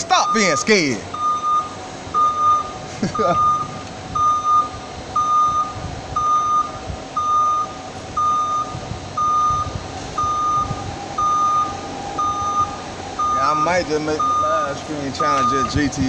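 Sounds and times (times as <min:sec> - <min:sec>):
forklift hum and rumble: 0:00.0 - 0:16.0
forklift warning beeper: 0:00.0 - 0:16.0.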